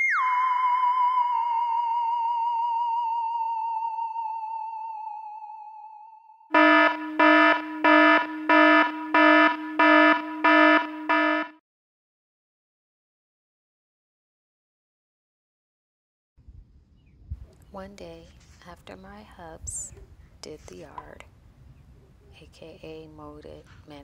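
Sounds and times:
buzzing alarm beeps: 0:06.5 - 0:11.6.

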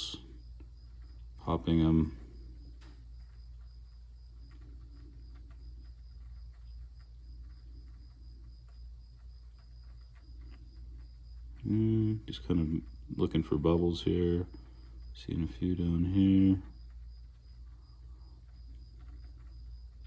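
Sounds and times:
low electrical hum: 0:00.0 - 0:20.0
faint small ticks: 0:02.4 - 0:13.2, 0:16.6 - 0:20.0.

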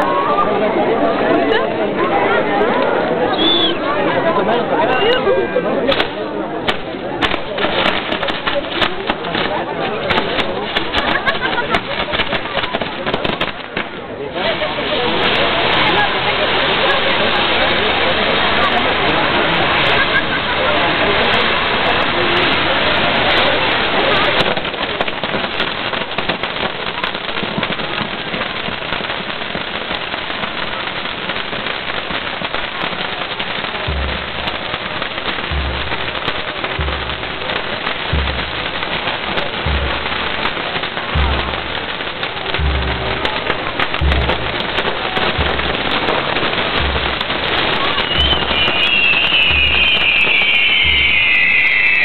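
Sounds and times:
fireworks crackling: 0:00.0 - 0:52.0
rising firework whistle: 0:03.3 - 0:03.9, 0:43.8 - 0:52.0
low thuds: 0:32.4 - 0:51.7.

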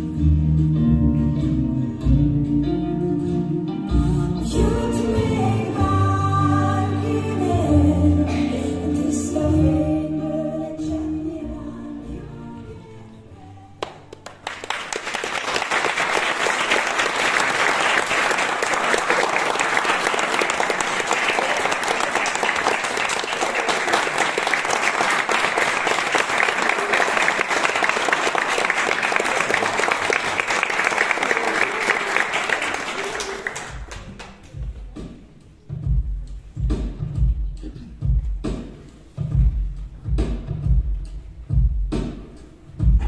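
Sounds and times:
person singing: 0:03.3 - 0:14.1
audience applauding: 0:13.8 - 0:34.6.

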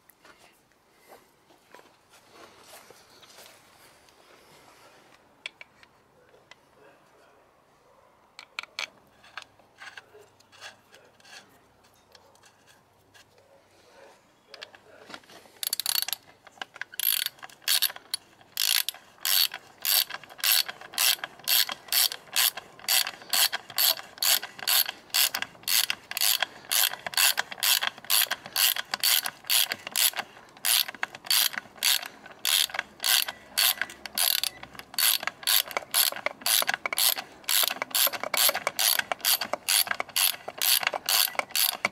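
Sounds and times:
ratchet wrench clicking: 0:15.6 - 0:41.9.

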